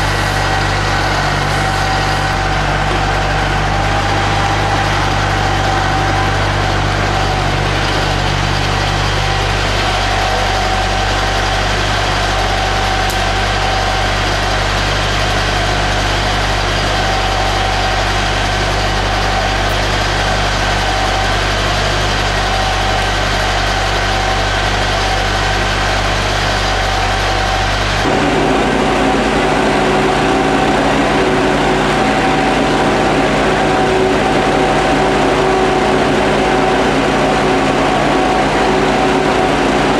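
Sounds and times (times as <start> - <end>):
engines droning: 0.0 - 39.9
high whine: 0.0 - 39.9
higher hum: 0.0 - 39.9.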